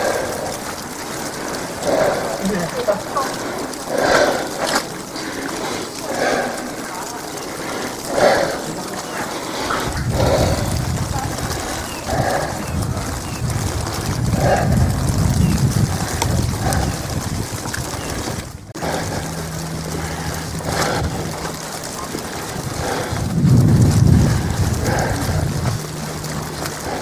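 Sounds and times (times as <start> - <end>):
wet snow hissing on umbrella: 0.0 - 13.1, 22.0 - 25.6
wind buffeting microphone: 0.0 - 27.0
low steady hum: 18.6 - 27.0.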